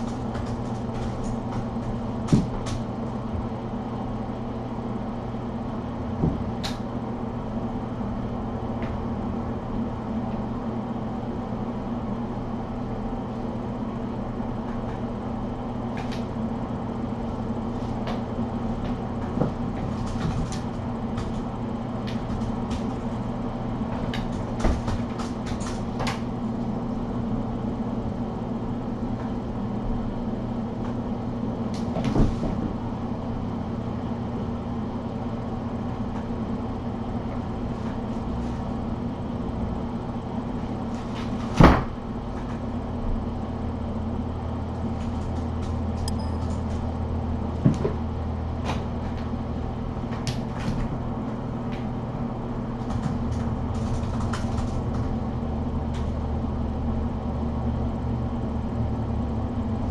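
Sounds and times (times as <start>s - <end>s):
knocks and thumps: 0.0s - 3.5s, 6.2s - 6.6s
low room hum: 0.0s - 59.9s.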